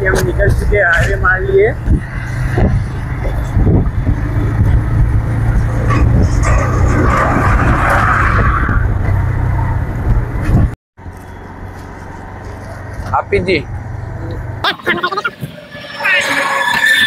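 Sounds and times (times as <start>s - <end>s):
wind rumbling on microphone: 0.0s - 10.8s
passing truck rush: 0.0s - 17.0s
motorcycle engine running: 1.8s - 6.4s.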